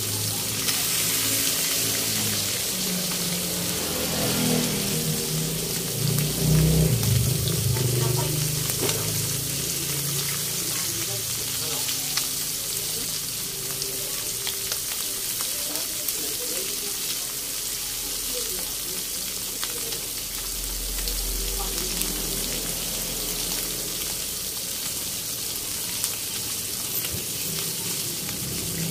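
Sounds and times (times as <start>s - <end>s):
fish sizzling in hot oil: 0.0s - 28.9s
low hum: 5.8s - 9.7s.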